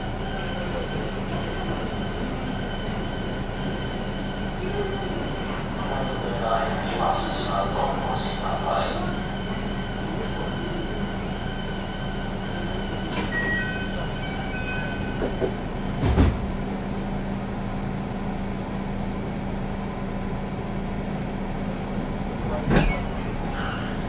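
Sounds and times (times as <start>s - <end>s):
electric train equipment humming: 0.0s - 22.6s
heavy thump: 16.0s - 16.5s.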